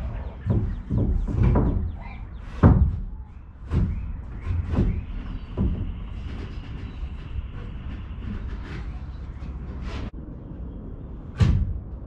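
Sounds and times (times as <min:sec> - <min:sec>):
dull knocks: 0:00.0 - 0:09.0
steady low rumble: 0:00.0 - 0:12.0.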